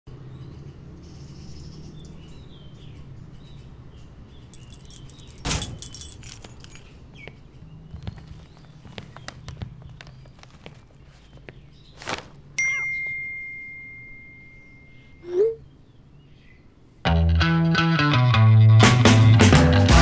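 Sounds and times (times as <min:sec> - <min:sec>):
low steady hum: 0:12.6 - 0:16.6.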